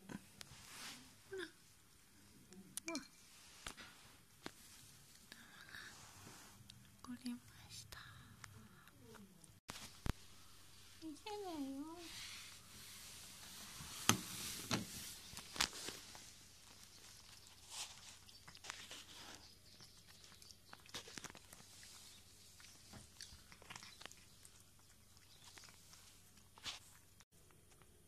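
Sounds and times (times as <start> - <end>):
cat crunching food: 15.4 - 28.0.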